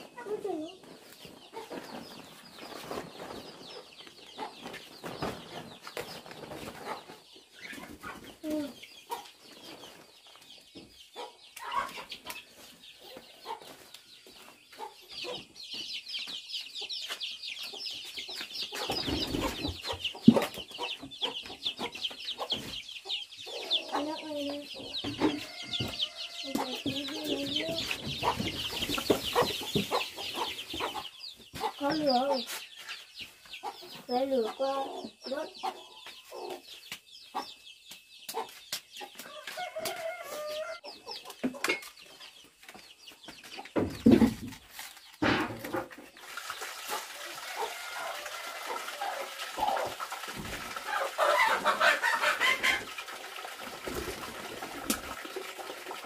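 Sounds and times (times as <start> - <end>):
chickens clucking: 0.0 - 56.0
leaves rustling in a tub: 46.0 - 56.0.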